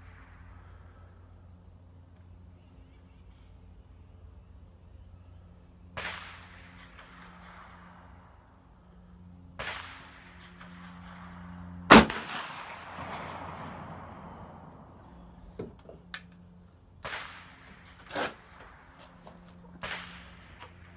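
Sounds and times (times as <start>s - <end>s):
rifle shot with echo: 6.0s - 7.7s, 11.9s - 15.0s.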